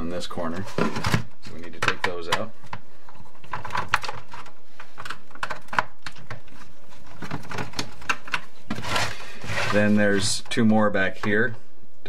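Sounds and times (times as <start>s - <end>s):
hands tapping plastic: 0.8s - 8.8s.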